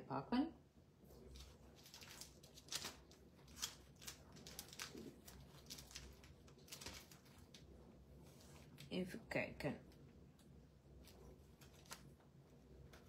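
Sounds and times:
paper and plastic rustling: 1.1 - 8.9, 11.0 - 13.0.

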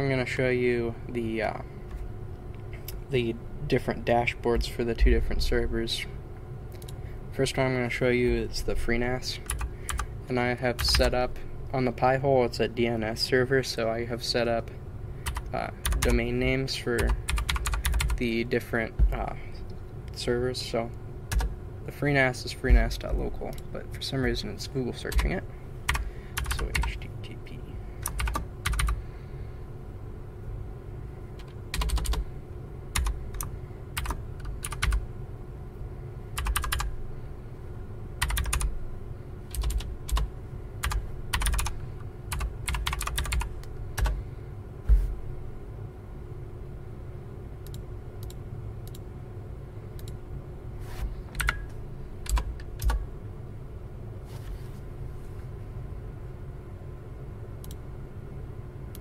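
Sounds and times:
steady low hum: 0.0 - 59.0
typing on keyboard: 9.5 - 10.0, 15.3 - 16.2, 17.0 - 18.2, 25.9 - 27.0, 28.0 - 29.0, 31.4 - 32.2, 33.0 - 35.0, 36.4 - 36.9, 38.2 - 38.7, 39.5 - 40.2, 40.8 - 41.7, 42.3 - 44.2.

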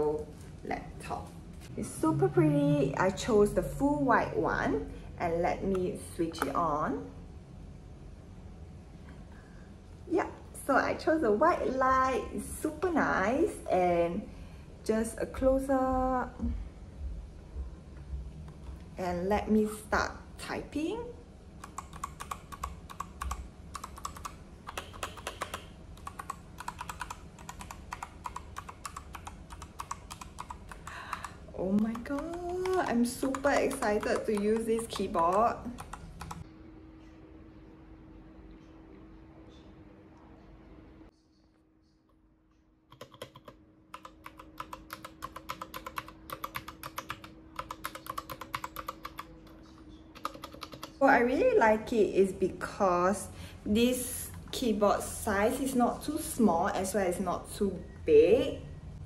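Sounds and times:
mechanical keyboard typing: 21.6 - 36.4, 42.9 - 51.0
mechanical keyboard keystroke clicks: 42.9 - 49.3, 50.2 - 50.9.

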